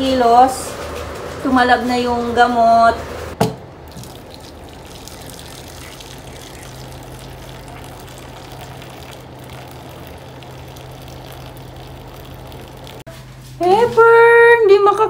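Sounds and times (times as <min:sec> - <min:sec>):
low steady hum: 0:00.0 - 0:15.0
water pouring into metal dish: 0:03.9 - 0:13.1.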